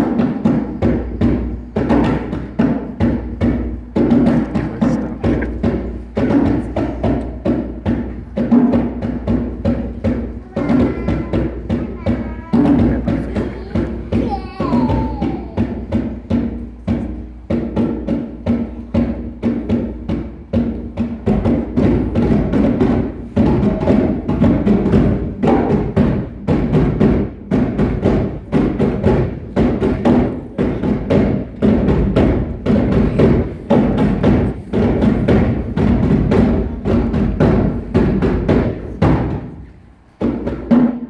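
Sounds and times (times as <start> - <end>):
djembes played by hand: 0.0 - 41.0.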